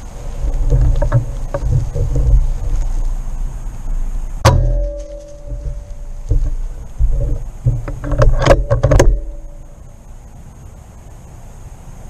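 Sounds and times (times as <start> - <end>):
low rumble: 0.0 - 10.4
sharp crack with ringing tone: 4.4 - 6.4
sharp knocks and clatters: 4.4 - 9.6.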